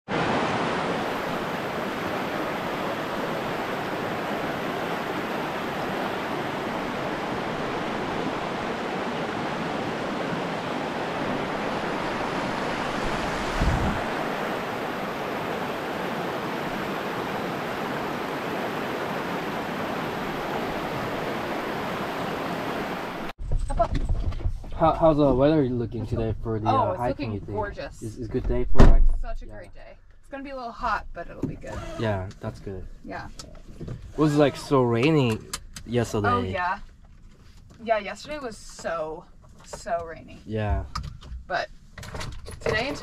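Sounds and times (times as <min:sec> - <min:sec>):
river rushing over gravel: 0:00.1 - 0:23.3
wind thump on microphone: 0:11.1 - 0:14.4, 0:23.4 - 0:26.4, 0:28.3 - 0:29.4, 0:40.6 - 0:41.5.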